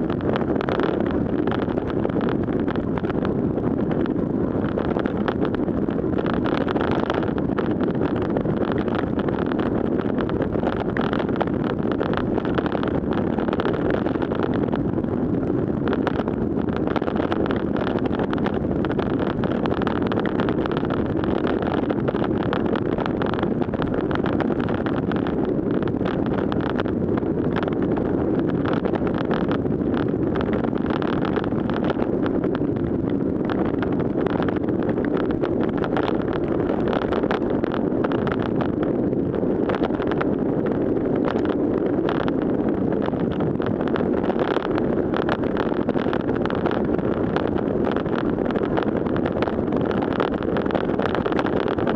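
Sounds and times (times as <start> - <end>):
wind noise on microphone: 0.0 - 51.9.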